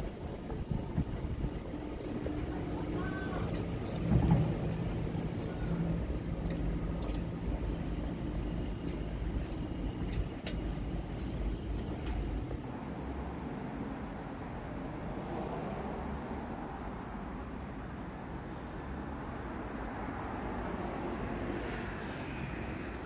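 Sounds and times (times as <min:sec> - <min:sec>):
vehicle engine humming: 0:00.0 - 0:12.8
road traffic rumble: 0:00.0 - 0:23.0.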